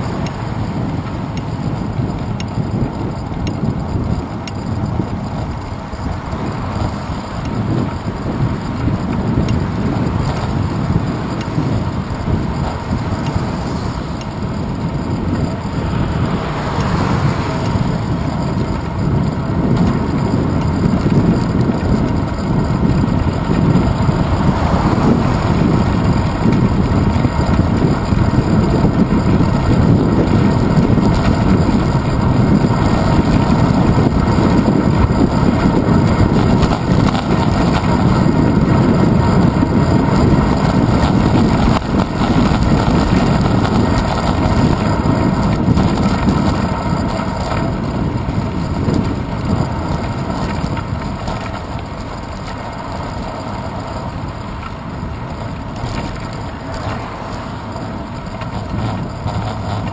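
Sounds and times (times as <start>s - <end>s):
road noise: 0.0s - 59.9s
wind buffeting microphone: 0.0s - 59.9s
car passing: 11.7s - 20.3s, 22.7s - 28.8s.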